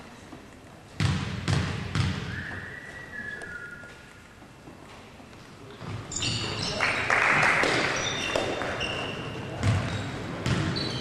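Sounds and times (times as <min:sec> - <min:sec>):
basketball bouncing: 0:01.0 - 0:02.3, 0:09.6 - 0:10.9
shoes squeaking on court: 0:05.8 - 0:07.0, 0:07.6 - 0:11.0.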